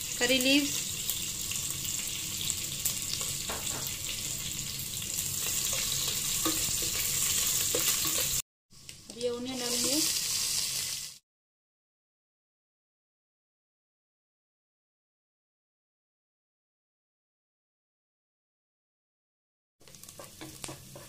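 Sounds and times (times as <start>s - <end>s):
oil sizzling in a pot: 0.0s - 11.2s, 19.8s - 21.0s
wooden spatula stirring: 5.4s - 8.4s, 19.8s - 21.0s.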